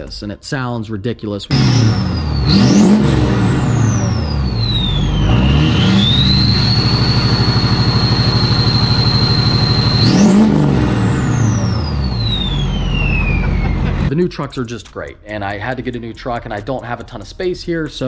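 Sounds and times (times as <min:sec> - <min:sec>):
diesel truck engine revving: 0:01.5 - 0:14.1
turbo whistle: 0:01.5 - 0:14.1.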